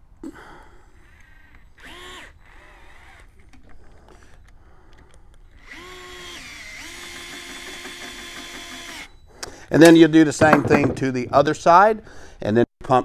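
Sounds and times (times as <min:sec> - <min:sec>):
electric screwdriver whining: 0:01.1 - 0:03.8, 0:05.5 - 0:09.1.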